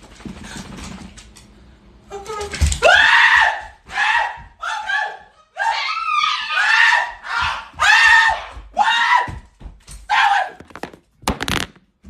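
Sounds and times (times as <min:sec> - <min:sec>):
person screaming in panic: 0:02.8 - 0:09.4
phone handling knocks and rattles: 0:10.6 - 0:11.8.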